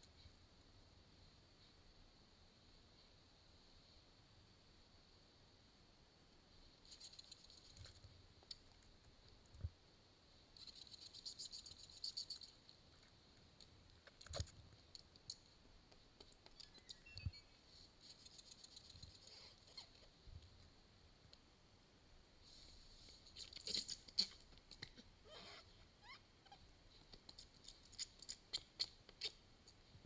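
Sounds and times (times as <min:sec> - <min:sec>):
faint clicking and rattling: 0:10.6 - 0:21.5.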